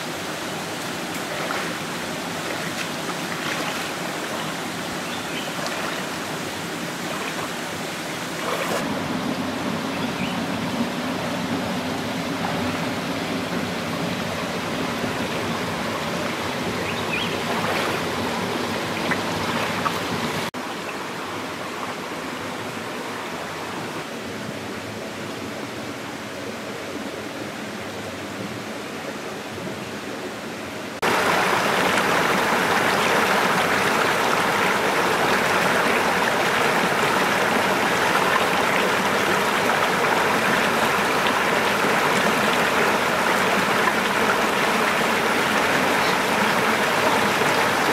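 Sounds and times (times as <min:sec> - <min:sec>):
stream splashing over stones: 0:00.0 - 0:08.9, 0:12.3 - 0:20.6, 0:31.0 - 0:47.9.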